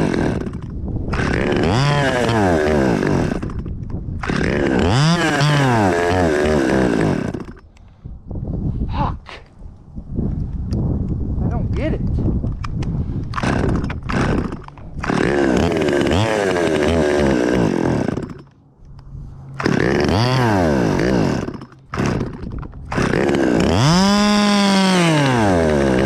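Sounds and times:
chainsaw revving: 0:00.0 - 0:07.6, 0:13.3 - 0:18.6, 0:19.6 - 0:26.0.

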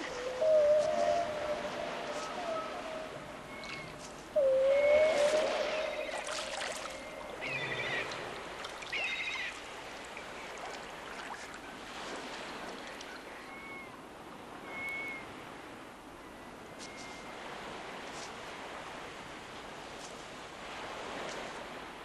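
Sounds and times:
warbling animal calls: 0:00.0 - 0:08.3.

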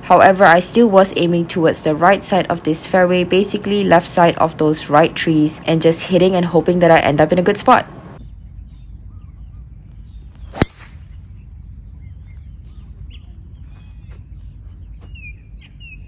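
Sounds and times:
faint bird chirps: 0:08.2 - 0:16.0
golf club hitting ball: 0:10.5 - 0:11.2.

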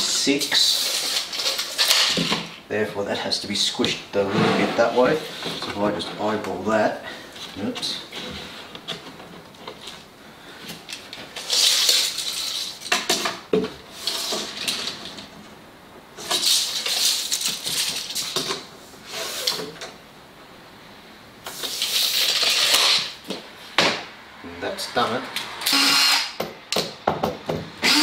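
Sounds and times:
tape measure rattling and scraping: 0:00.0 - 0:02.5, 0:11.0 - 0:15.2, 0:16.2 - 0:19.8, 0:21.5 - 0:23.2.

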